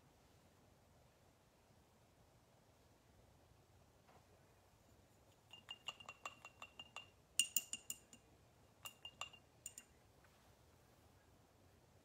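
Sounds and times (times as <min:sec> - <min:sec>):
paintbrush clinking against glass jar: 0:05.3 - 0:10.0.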